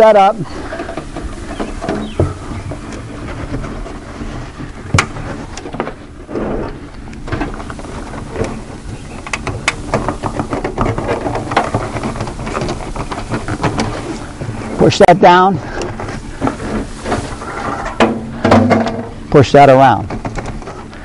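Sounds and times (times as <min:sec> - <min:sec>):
metal downspout scraping and clicking: 0:00.0 - 0:21.0
small clicks and knocks: 0:09.2 - 0:14.1.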